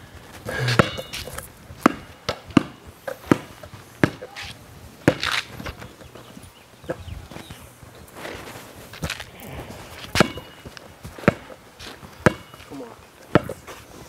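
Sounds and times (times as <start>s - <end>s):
basketball bouncing on concrete: 0.5s - 6.2s, 9.0s - 13.7s
footsteps in sandals: 3.2s - 14.0s.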